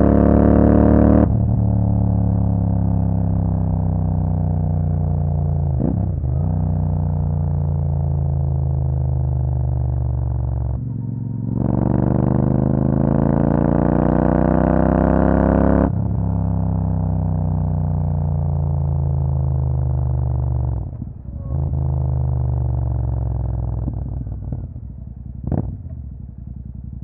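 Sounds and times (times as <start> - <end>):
motorcycle engine revving: 0.0 - 7.3, 9.8 - 16.4, 19.9 - 26.9.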